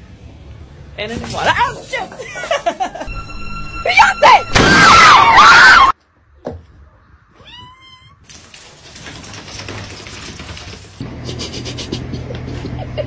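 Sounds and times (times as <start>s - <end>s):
loud wavering tone: 3.1s - 5.9s
cat meowing: 7.3s - 8.2s.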